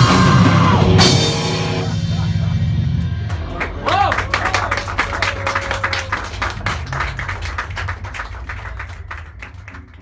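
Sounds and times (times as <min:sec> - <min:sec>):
audience clapping: 0:03.0 - 0:10.0.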